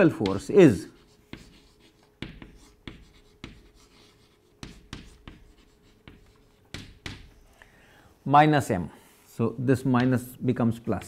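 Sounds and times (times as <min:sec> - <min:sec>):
chalk tapping and scratching: 0:00.0 - 0:07.6
faint steady hum: 0:00.1 - 0:11.0.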